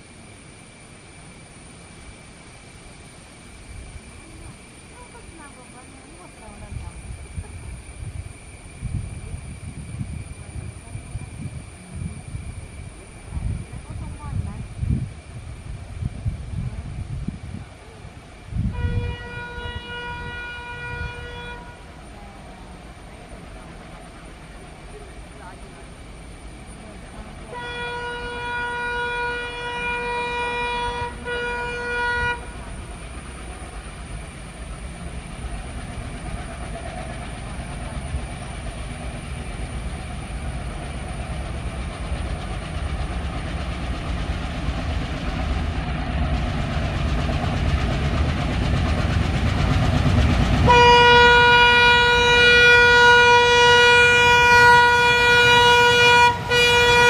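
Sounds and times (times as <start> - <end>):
diesel locomotive chugging rumble: 0.0 - 57.0
train horn blast: 18.6 - 22.0, 27.5 - 32.6, 50.6 - 57.0.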